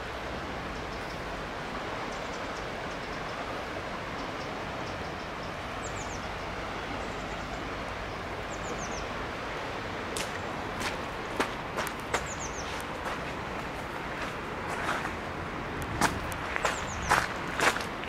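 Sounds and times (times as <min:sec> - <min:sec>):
flooded river rushing: 0:00.0 - 0:18.0
bird chirping: 0:04.2 - 0:07.5, 0:12.2 - 0:12.8, 0:16.5 - 0:17.4.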